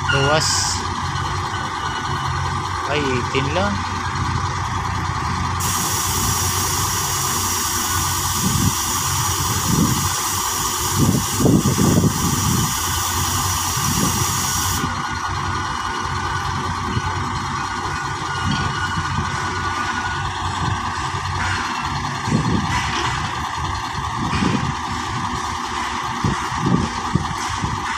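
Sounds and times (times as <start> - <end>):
diesel engines idling: 0.0 - 27.9
high even hiss: 5.6 - 14.8.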